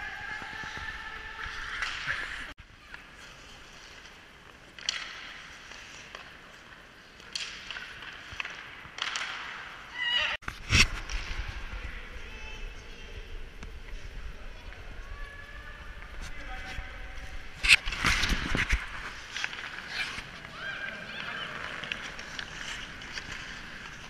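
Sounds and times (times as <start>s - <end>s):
skate blades scraping ice: 17.3s - 24.0s.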